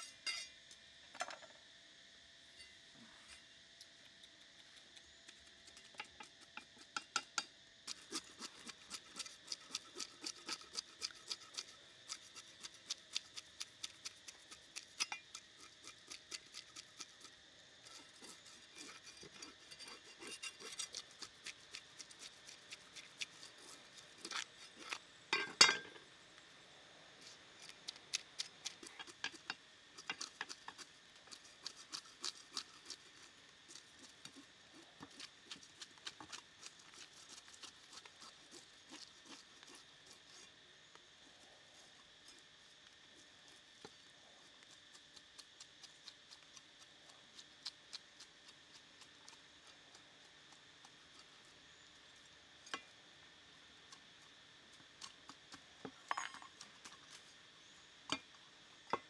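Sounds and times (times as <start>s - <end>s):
cleaver scraping fish scales: 7.9s - 25.1s, 27.2s - 40.5s.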